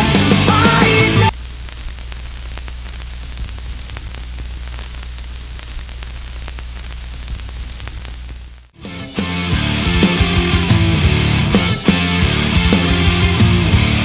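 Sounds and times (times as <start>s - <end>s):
tv static hiss with crackles: 0.0s - 14.0s
low steady hum: 1.3s - 8.7s.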